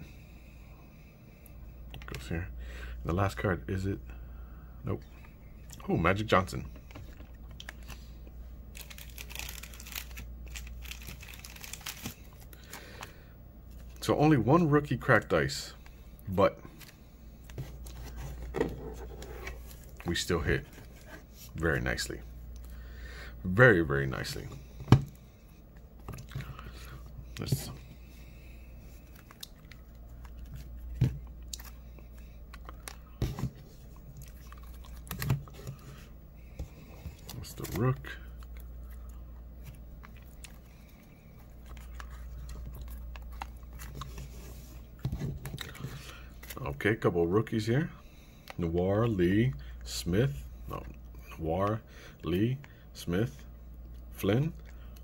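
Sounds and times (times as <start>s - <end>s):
low steady hum: 0.0s - 55.0s
plastic wrapper crinkling: 8.7s - 12.9s
cards clicking and rustling: 8.8s - 12.9s.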